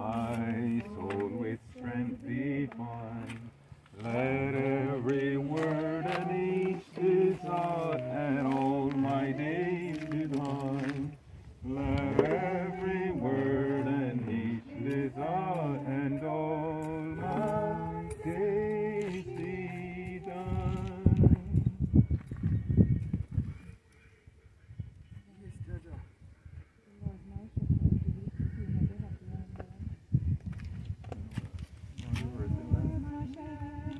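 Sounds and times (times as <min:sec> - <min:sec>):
man singing unaccompanied: 0:00.0 - 0:21.8, 0:32.0 - 0:33.9.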